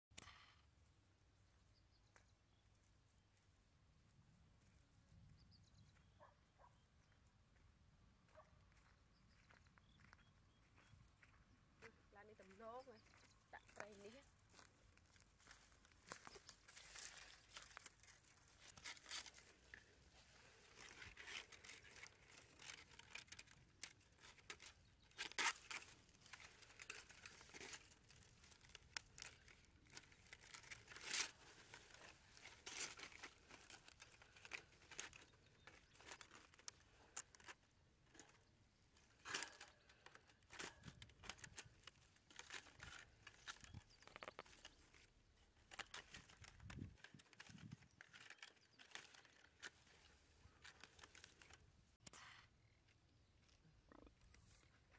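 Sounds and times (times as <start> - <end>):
bamboo traps rustling and crackling: 12.5 - 54.9.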